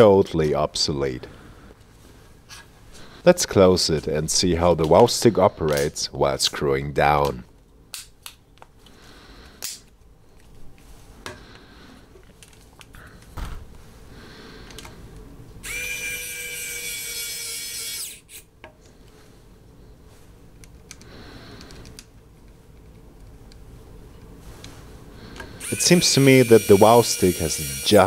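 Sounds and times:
electric screwdriver motor whirring: 15.6 - 18.4, 25.6 - 28.0.

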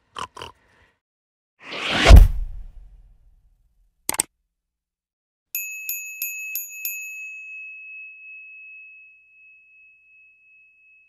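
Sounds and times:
small bell ringing: 5.5 - 11.0.

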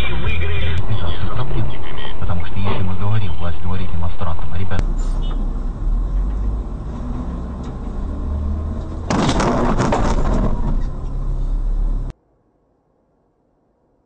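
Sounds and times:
rough rushing noise: 4.8 - 12.1
vehicle driving on wet road: 4.8 - 12.1.

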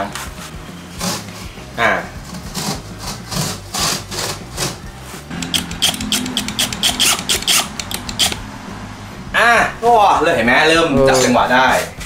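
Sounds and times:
cordless drill driving screw: 5.3 - 8.4.

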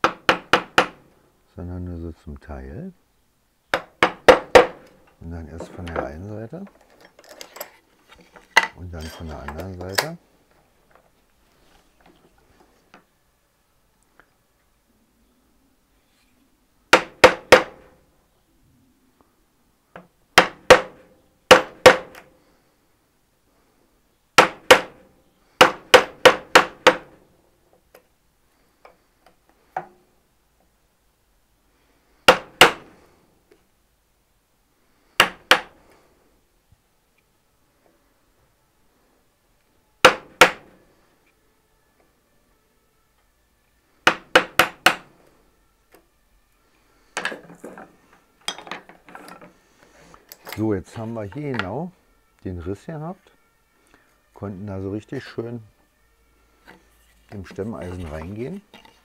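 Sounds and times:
chisel being struck: 3.7 - 4.9, 20.4 - 22.2, 44.1 - 45.1
chisel knocking and scraping wood: 50.3 - 51.7, 56.6 - 59.0.

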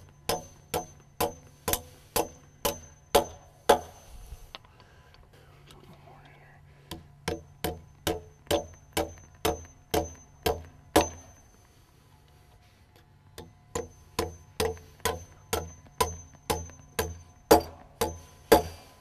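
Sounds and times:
hammer striking wood: 0.0 - 4.0, 6.9 - 11.4, 13.4 - 18.9.

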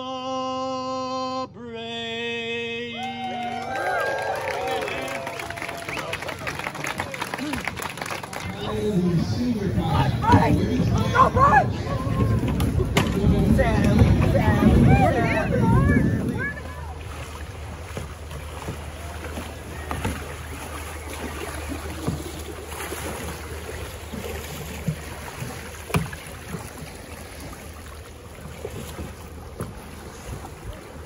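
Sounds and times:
kayak paddles splashing: 3.0 - 31.0
wind on microphone: 9.8 - 17.2
creek running over rocks: 12.2 - 31.0.

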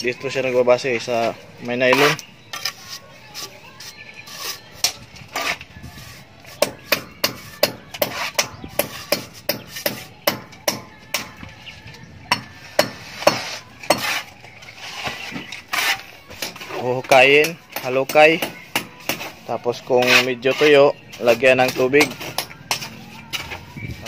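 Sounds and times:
trowel scraping and tapping: 1.9 - 10.1, 12.8 - 16.8, 17.4 - 23.7.

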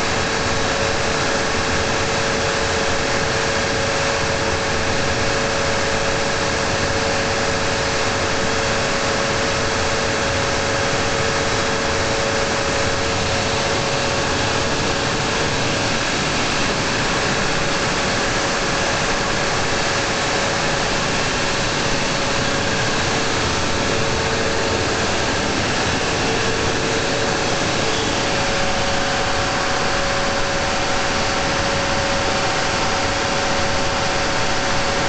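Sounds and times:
diesel generator running: 0.0 - 35.0
whining tones: 10.7 - 33.4.

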